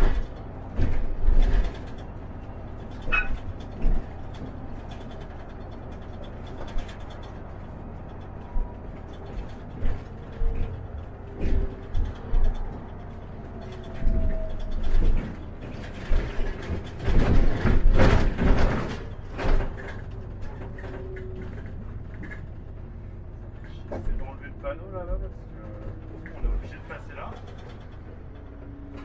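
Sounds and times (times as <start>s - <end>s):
bus body rattling: 0.0s - 29.0s
bus engine and road rumble: 0.0s - 29.0s.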